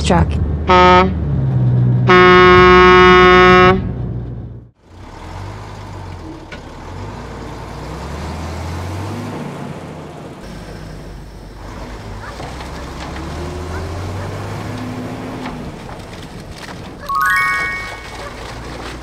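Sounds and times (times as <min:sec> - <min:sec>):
diesel engine rumble: 0:00.0 - 0:17.1
truck horn honking: 0:00.7 - 0:01.2, 0:02.1 - 0:04.0.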